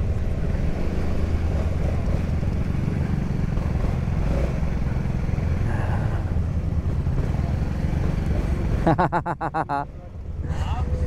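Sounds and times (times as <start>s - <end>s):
motorcycle engine rumbling: 0.0s - 11.0s.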